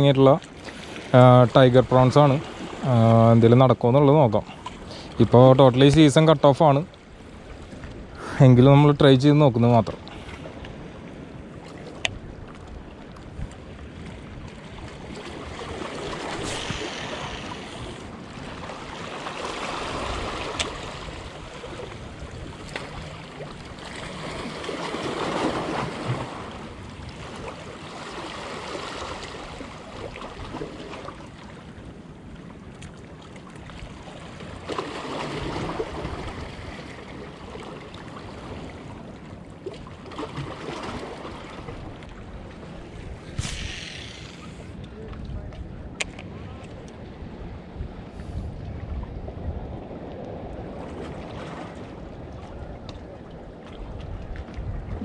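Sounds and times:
wind on microphone: 0:10.1 - 0:27.4, 0:41.6 - 0:55.0
water rushing in swells: 0:12.8 - 0:32.1, 0:33.8 - 0:44.8.

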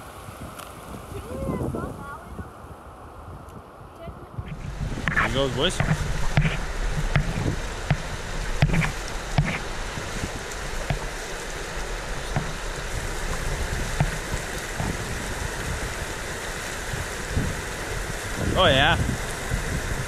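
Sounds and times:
river rushing over rocks: 0:04.3 - 0:20.0
canoe knocks and splashes: 0:04.5 - 0:11.4.

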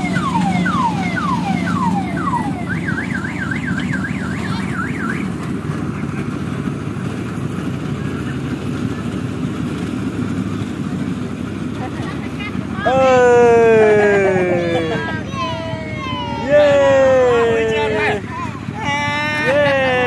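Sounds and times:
electronic siren wailing: 0:00.0 - 0:05.3.

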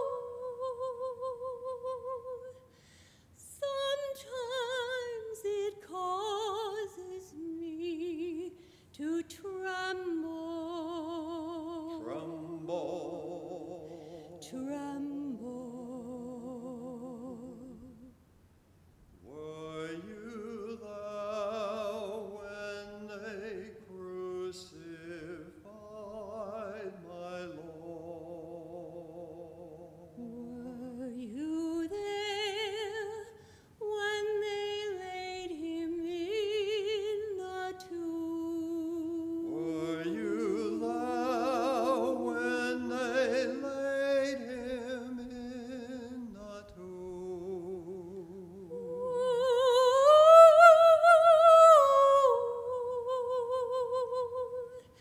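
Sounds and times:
man and woman singing duet: 0:00.0 - 0:02.6, 0:03.4 - 0:18.1, 0:19.2 - 0:55.0.

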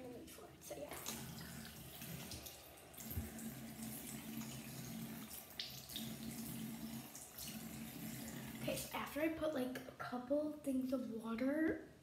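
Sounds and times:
sink tap running: 0:00.7 - 0:09.1.

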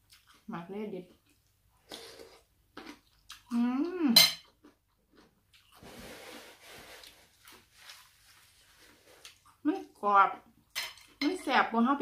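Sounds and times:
chewing crisp raw vegetables: 0:00.0 - 0:03.8, 0:06.8 - 0:10.0.

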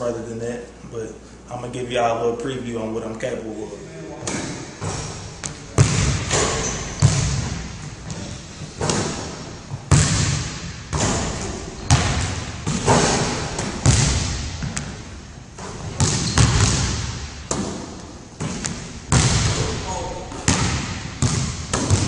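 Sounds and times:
basketball bouncing on wooden floor: 0:04.4 - 0:15.0, 0:15.6 - 0:19.7, 0:20.3 - 0:22.0.

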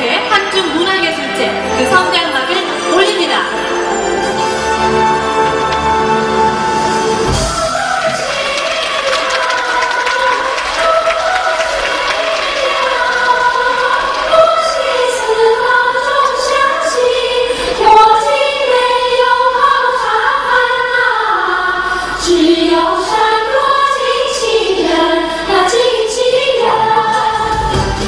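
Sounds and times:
women singing together: 0:07.3 - 0:28.0.

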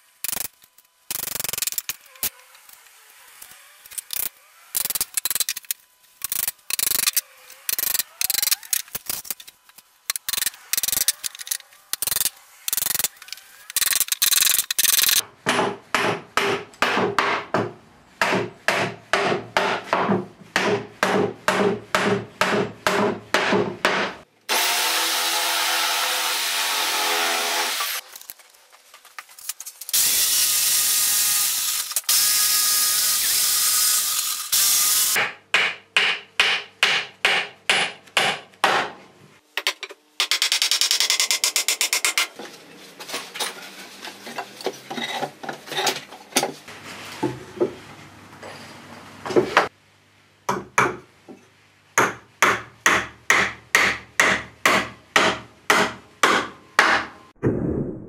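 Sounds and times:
electric jigsaw running: 0:24.5 - 0:28.0, 0:30.0 - 0:35.2.

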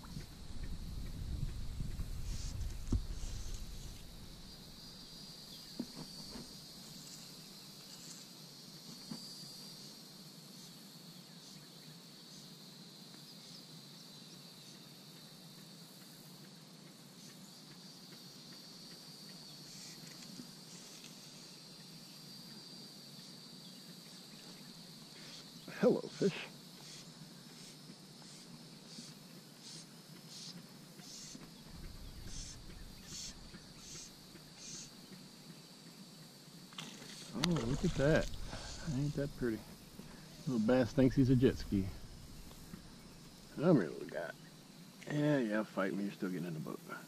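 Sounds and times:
low rumble: 0:00.0 - 0:04.8, 0:31.6 - 0:34.2, 0:37.4 - 0:43.6
insects trilling: 0:00.0 - 0:47.0.

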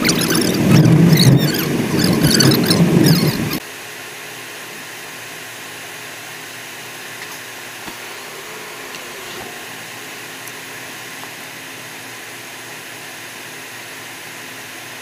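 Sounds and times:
air-conditioning fan blowing: 0:00.0 - 0:15.0
engine idling: 0:07.5 - 0:12.2.

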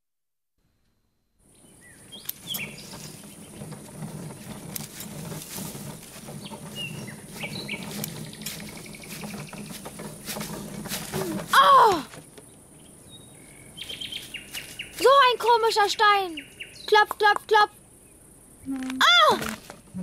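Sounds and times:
bird chirps: 0:01.5 - 0:03.7, 0:06.2 - 0:09.9, 0:12.5 - 0:17.3
insect-like hiss: 0:01.5 - 0:20.0.

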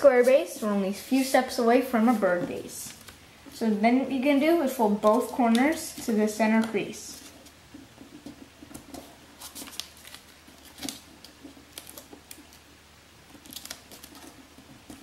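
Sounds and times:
paper rustling and crackling: 0:02.0 - 0:03.2, 0:05.0 - 0:12.6, 0:13.3 - 0:15.0.

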